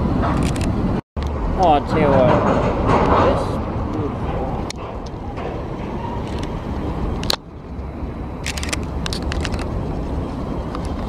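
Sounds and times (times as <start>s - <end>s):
low outdoor rumble: 0.0s - 11.0s
camera handling clicks: 8.4s - 9.7s.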